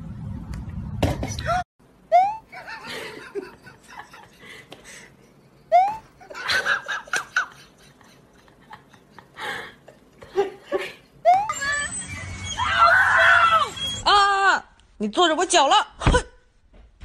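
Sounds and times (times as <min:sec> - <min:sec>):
person laughing: 0:02.1 - 0:05.0
high rising squeal: 0:11.3 - 0:14.1.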